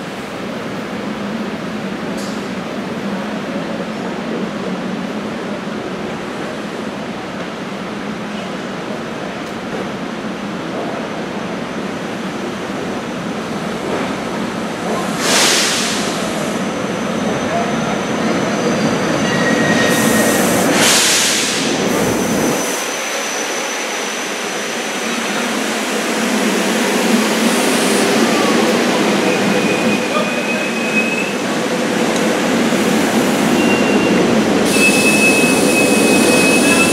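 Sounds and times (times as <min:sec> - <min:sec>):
train rumbling into station: 0:00.0 - 0:36.9
high brake squeals: 0:16.9 - 0:20.6, 0:29.2 - 0:31.4, 0:33.5 - 0:36.9.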